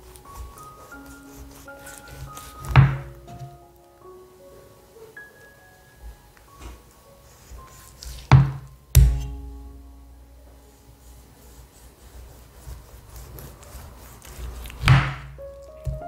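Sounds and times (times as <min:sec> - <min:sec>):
blade rubbing through jelly: 0:00.0 - 0:03.4, 0:11.1 - 0:16.0
knife striking cutting board: 0:08.3 - 0:09.8.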